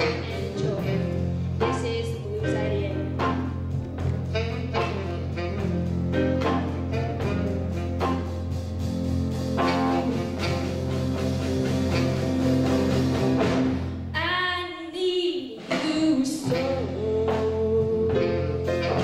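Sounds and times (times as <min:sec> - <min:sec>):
woman singing: 0:00.0 - 0:03.4, 0:14.2 - 0:19.0
live blues band playing: 0:00.0 - 0:19.0.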